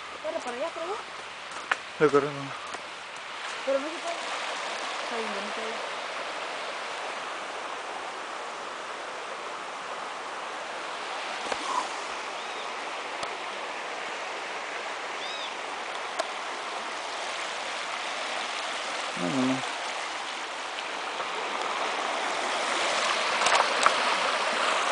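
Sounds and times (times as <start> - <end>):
river running over stones: 0.0 - 24.9.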